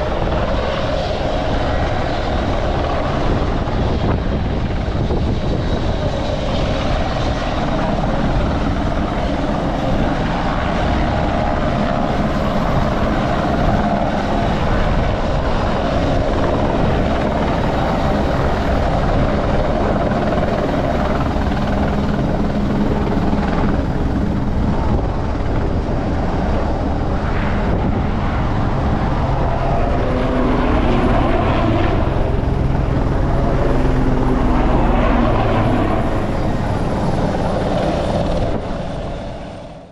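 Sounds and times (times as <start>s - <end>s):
helicopter rotor beat: 0.0s - 39.9s
helicopter turbine noise: 0.0s - 39.9s.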